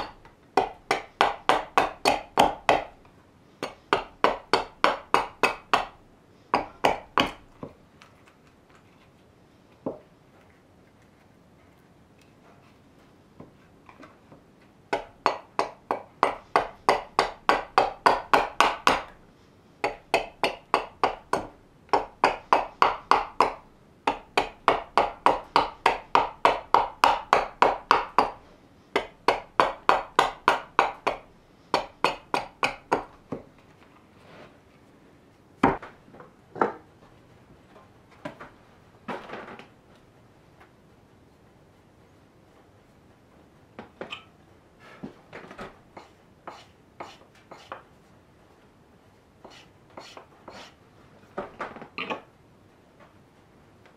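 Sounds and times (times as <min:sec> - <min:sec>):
axe chopping wood: 0:00.0 - 0:03.0, 0:03.6 - 0:06.0, 0:06.6 - 0:07.6, 0:15.0 - 0:19.2, 0:19.8 - 0:28.4, 0:29.0 - 0:31.2.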